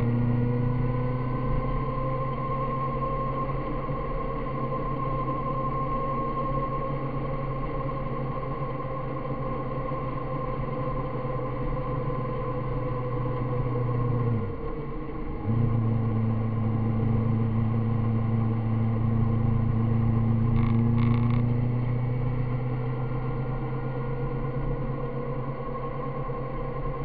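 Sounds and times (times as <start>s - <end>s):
vehicle engine cruising: 0.0s - 8.3s, 9.2s - 27.0s
rushing road noise: 13.8s - 27.0s.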